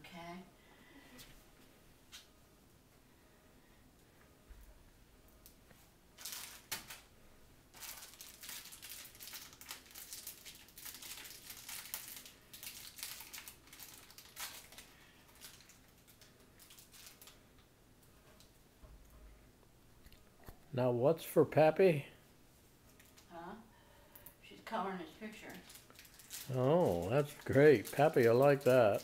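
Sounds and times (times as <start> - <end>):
material rustling and crinkling: 25.5 - 29.0.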